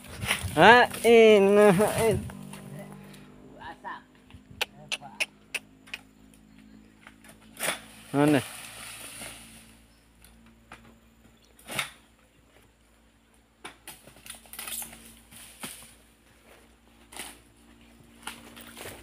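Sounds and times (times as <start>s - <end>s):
sickle striking palm fronds: 0.0s - 2.7s, 7.0s - 9.7s, 11.6s - 12.1s, 13.6s - 16.0s, 17.0s - 17.5s, 18.2s - 19.0s.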